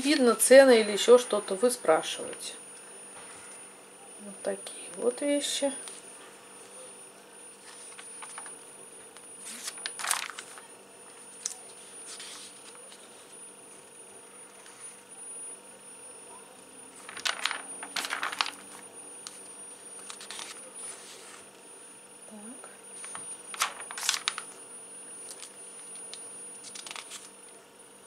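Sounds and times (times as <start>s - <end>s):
catalogue pages rustling: 7.6s - 13.4s, 16.9s - 21.5s, 23.0s - 24.6s, 25.2s - 27.4s.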